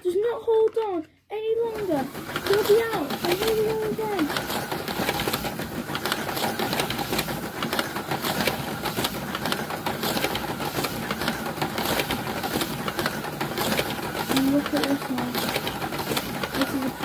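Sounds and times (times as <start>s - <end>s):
small electric motors whirring: 1.6s - 17.0s
slot cars rattling over track: 1.9s - 4.8s.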